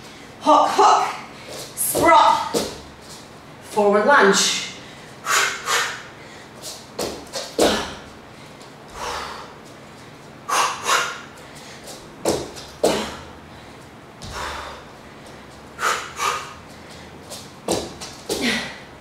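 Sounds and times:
low room hum: 0.0 - 19.0
woman exhaling forcefully: 5.2 - 6.4, 10.5 - 11.3, 14.2 - 14.8, 15.8 - 16.6.

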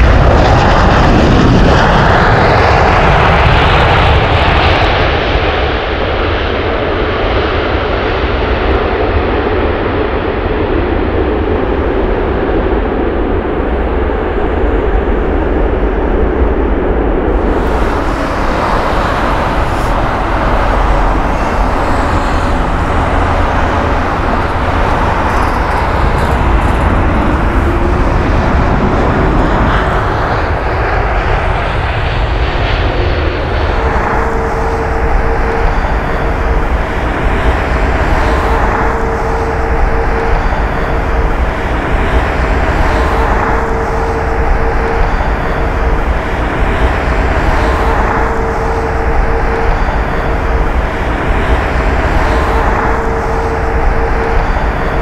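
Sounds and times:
aircraft engine noise: 0.0 - 55.0
jet airliner engines: 0.0 - 55.0.

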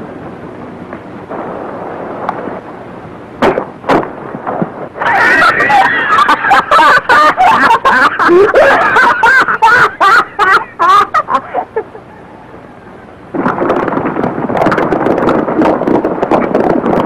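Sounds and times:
man and girl laughing: 5.0 - 12.1.

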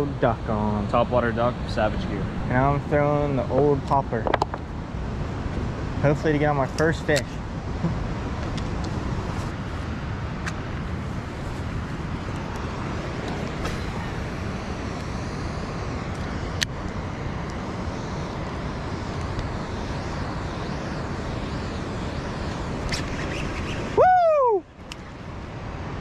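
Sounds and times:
steady rushing noise: 0.0 - 26.0.

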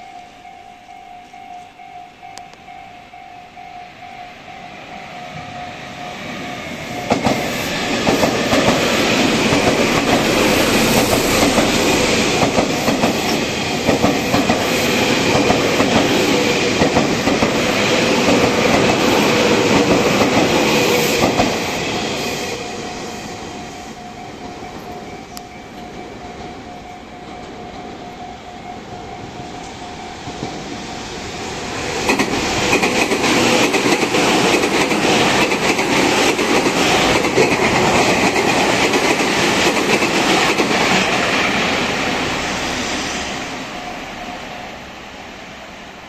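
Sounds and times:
level crossing warning bell: 0.0 - 7.9, 22.5 - 31.2
electric train passing: 0.0 - 46.0.

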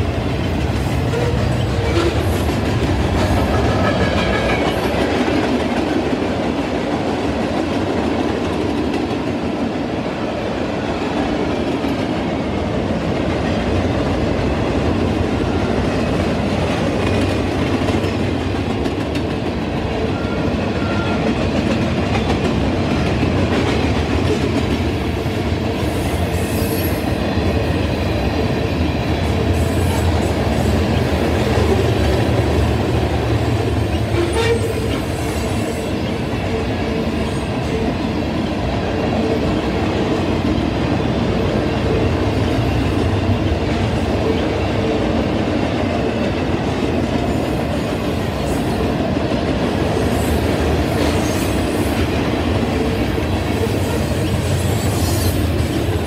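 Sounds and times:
freight train rolling past: 0.0 - 56.0
wheels clacking on rail joints: 0.2 - 7.7.

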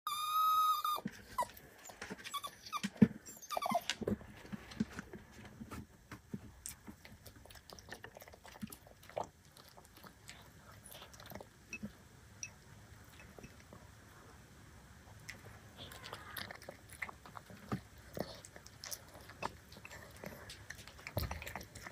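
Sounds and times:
dog whining: 0.1 - 4.0
dog eating from ceramic bowl: 6.7 - 13.8, 15.1 - 21.9.

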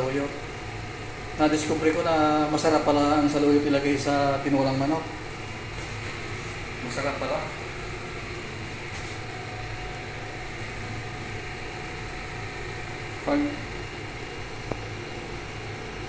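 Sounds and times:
low kitchen hum with hiss: 0.0 - 16.0.

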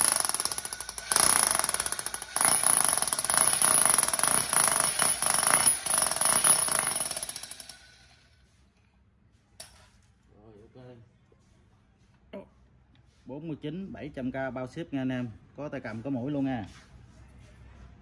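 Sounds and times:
demolition hammer rattling: 0.0 - 7.8.

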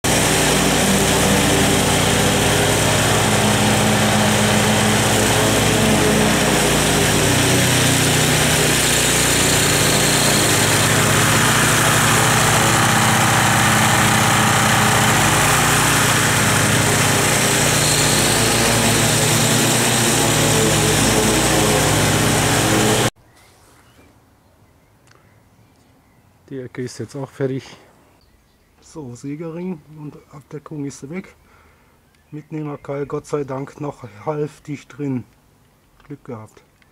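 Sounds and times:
riding mower engine mowing: 0.0 - 23.2.

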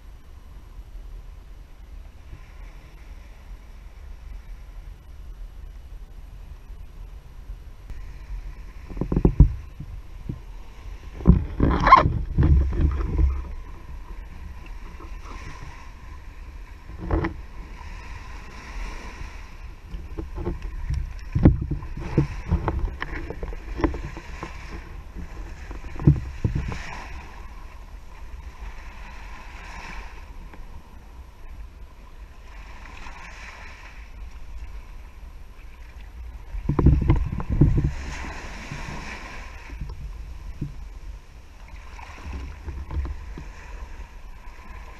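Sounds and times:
small waves breaking on sand: 7.9 - 44.9
low thumps on camera housing: 8.9 - 10.4, 11.2 - 14.2, 19.9 - 26.7, 36.6 - 38.0.

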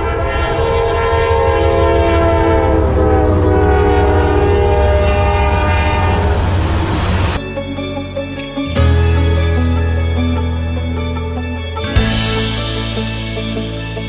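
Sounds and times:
locomotive horn: 0.0 - 7.4
passing train rumble: 0.0 - 14.0.

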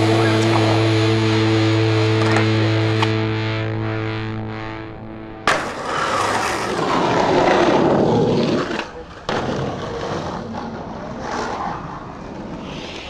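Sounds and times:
street noise: 0.0 - 13.0
skateboard clack: 2.2 - 3.2, 5.4 - 13.0
skateboard wheels rolling on asphalt: 5.4 - 13.0.

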